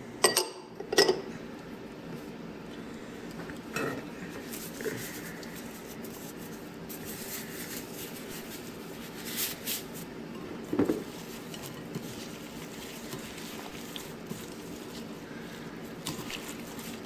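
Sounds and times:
steady low hum: 0.0 - 17.0
gloved hand rustling in bowl: 4.2 - 17.0.

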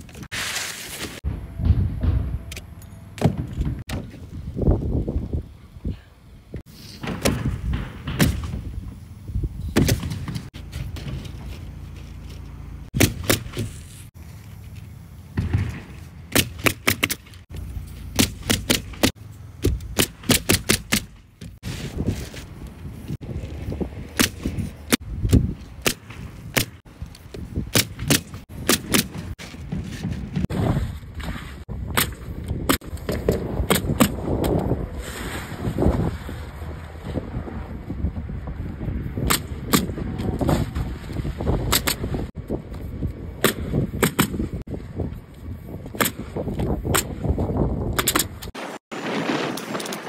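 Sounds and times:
wind rumble on microphone: 1.2 - 2.7, 3.3 - 11.6, 21.6 - 48.6
pneumatic nailer shots: 6.7 - 8.8, 13.0 - 14.0, 15.4 - 17.4, 18.1 - 21.6, 24.2 - 26.8, 27.7 - 29.4, 41.7 - 42.2, 43.4 - 44.6.

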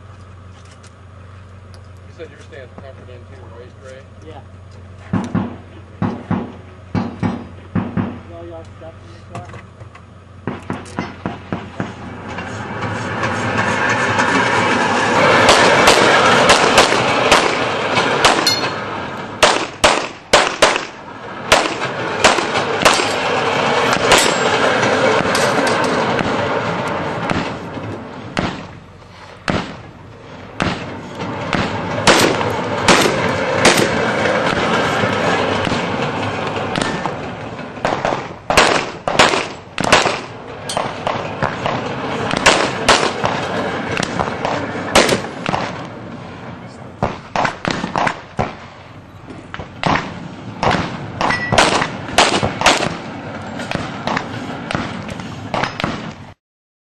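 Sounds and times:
steady rushing noise: 10.2 - 56.4
gunshots: 15.3 - 18.8, 19.4 - 23.3, 23.9 - 24.5, 28.4 - 28.7, 29.4 - 29.8, 30.6 - 34.7, 37.8 - 45.9, 47.0 - 48.7, 49.5 - 53.0.

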